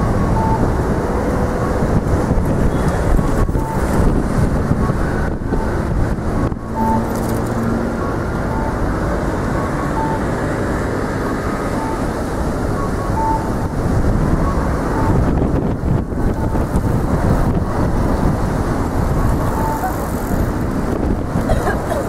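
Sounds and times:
street traffic noise: 0.0s - 22.0s
short beeps: 0.3s - 0.7s, 2.7s - 3.9s, 6.7s - 7.4s, 9.8s - 10.3s, 11.7s - 12.1s, 12.8s - 13.7s, 19.5s - 20.3s.

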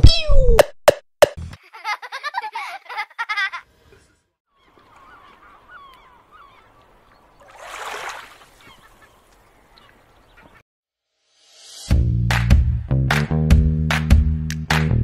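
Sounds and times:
birds crying: 3.8s - 10.6s.

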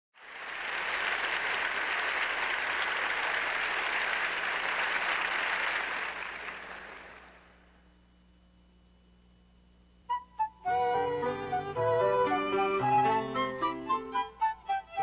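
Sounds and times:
audience applauding: 0.2s - 7.6s.

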